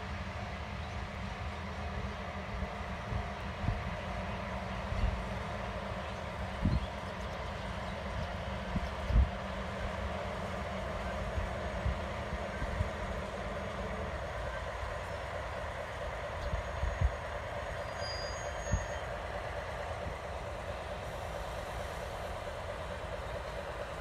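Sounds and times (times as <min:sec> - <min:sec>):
diesel locomotives droning: 0:00.0 - 0:24.0.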